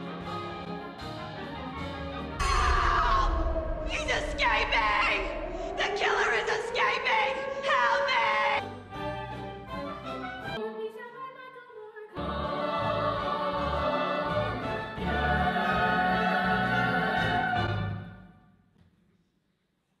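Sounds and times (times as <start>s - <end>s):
ensemble voices singing: 2.4s - 8.6s, 12.1s - 18.0s.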